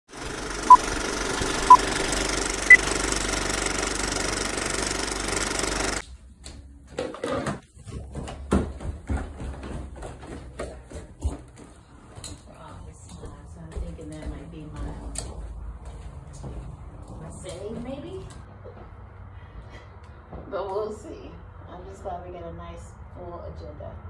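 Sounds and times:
film projector whirring: 0:00.1 - 0:06.0.

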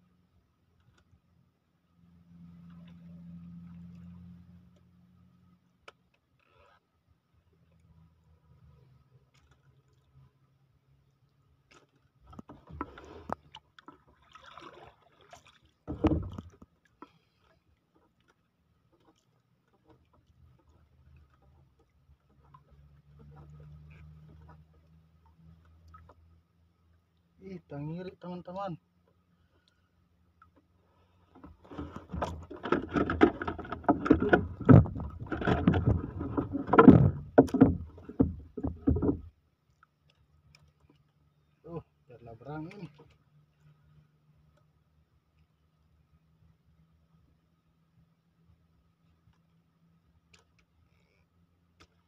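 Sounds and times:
wooden oar knocking in boat: 0:12.2 - 0:14.7, 0:15.9 - 0:16.7, 0:31.4 - 0:39.3
fishing line hauled in: 0:29.1 - 0:41.7.

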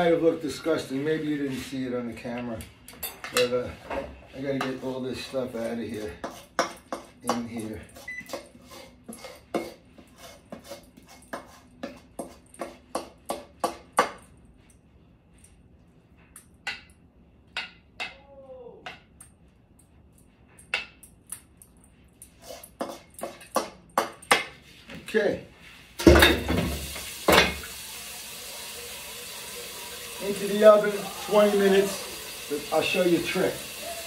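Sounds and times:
utensil scraping mixing bowl: 0:04.4 - 0:12.9, 0:29.2 - 0:33.8.

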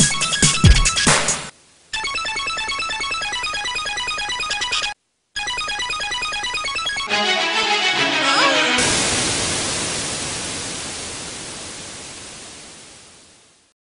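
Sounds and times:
background music: 0:06.8 - 0:09.6.

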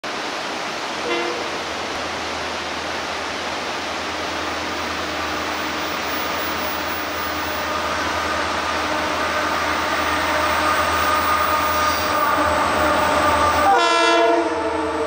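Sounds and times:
steady rushing noise: 0:00.0 - 0:13.7
locomotive rumble: 0:00.1 - 0:15.0.

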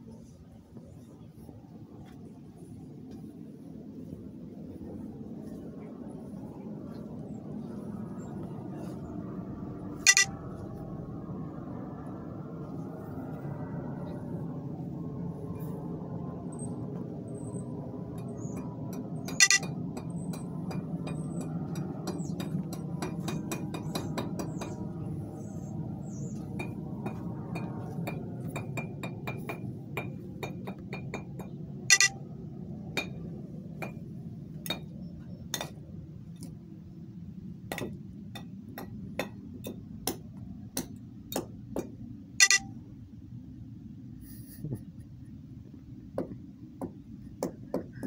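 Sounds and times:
sharp irregular clicks and clinks: 0:10.1 - 0:10.3, 0:19.0 - 0:24.2, 0:31.9 - 0:32.2, 0:42.4 - 0:42.7.

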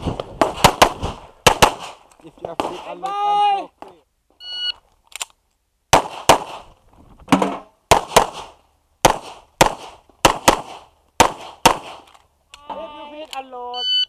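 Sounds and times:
rapid gunshots: 0:00.4 - 0:02.0, 0:07.9 - 0:12.0.

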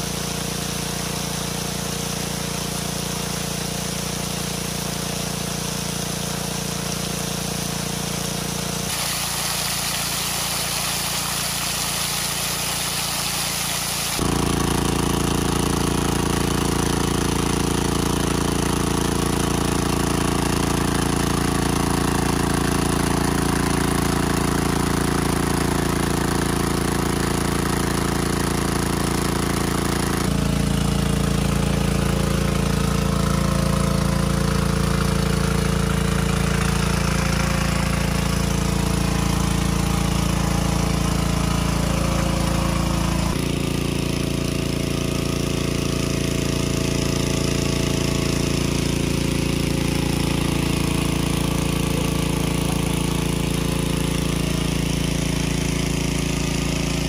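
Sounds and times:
water pump engine running: 0:00.0 - 0:57.0.

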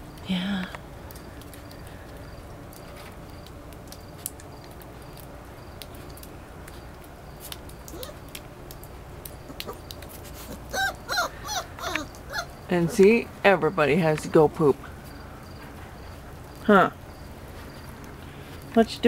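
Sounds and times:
low steady hum: 0:00.0 - 0:19.0
faint scattered clicks: 0:00.2 - 0:10.2
puppy whimpering: 0:07.9 - 0:08.2, 0:10.4 - 0:13.2.

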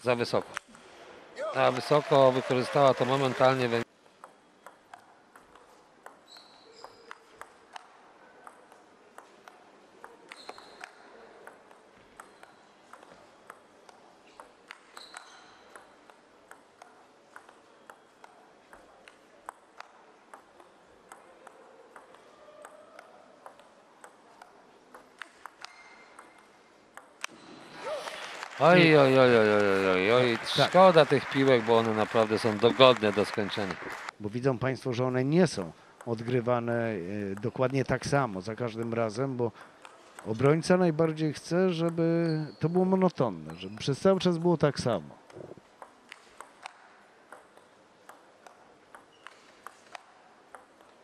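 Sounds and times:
quiet hall ambience: 0:00.0 - 0:51.0
table tennis ball clicking: 0:04.2 - 0:27.3, 0:45.8 - 0:51.0
short high squeaks: 0:10.3 - 0:11.0, 0:15.0 - 0:15.6.

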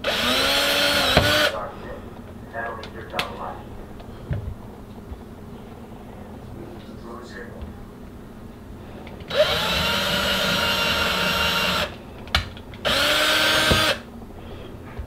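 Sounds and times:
cordless drill boring into wood: 0:00.0 - 0:01.6, 0:09.3 - 0:12.0, 0:12.8 - 0:14.1.

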